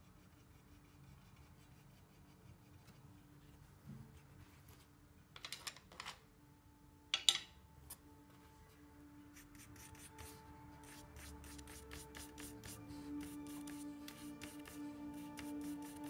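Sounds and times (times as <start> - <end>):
soft music with held tones: 6.2 - 16.0.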